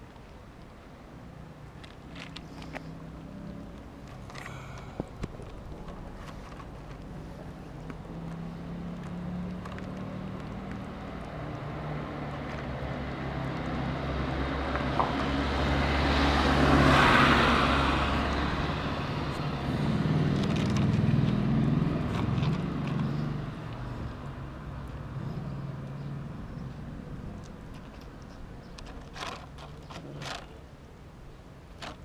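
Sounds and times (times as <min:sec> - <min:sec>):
vehicle driving past: 0:08.0 - 0:27.5.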